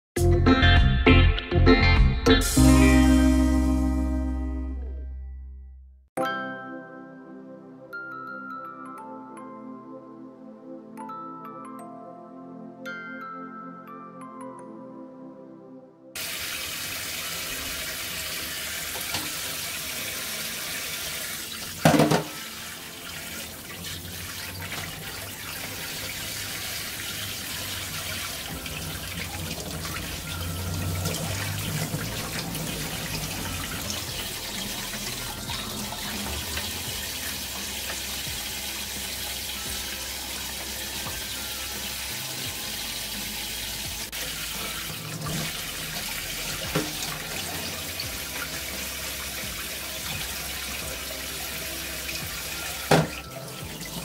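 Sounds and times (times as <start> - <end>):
tap running into a metal sink: 18.9 - 19.6, 21.6 - 22.5, 46.7 - 47.8, 52.9 - 53.3.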